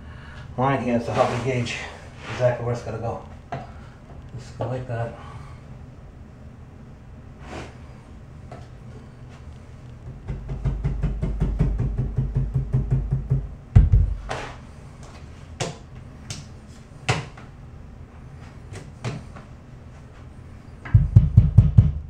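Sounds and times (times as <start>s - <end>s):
heavy knock: 10.1s - 14.3s, 20.9s - 22.0s.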